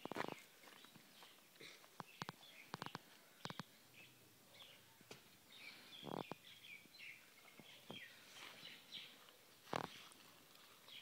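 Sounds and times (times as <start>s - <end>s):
footsteps crunching on gravel: 0.0s - 2.0s
faint bird chirps: 0.2s - 10.2s.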